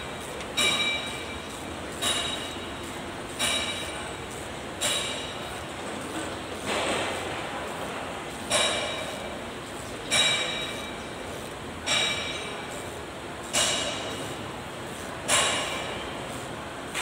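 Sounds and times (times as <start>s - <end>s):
wrench clinking against metal: 0.0s - 4.2s, 4.8s - 5.7s, 8.5s - 9.4s, 10.0s - 11.2s, 11.8s - 12.9s.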